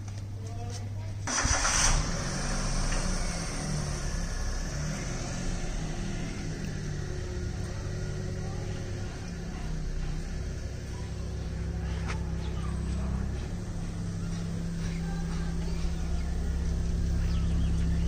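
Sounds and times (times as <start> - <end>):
car engine idling: 1.2 - 18.0.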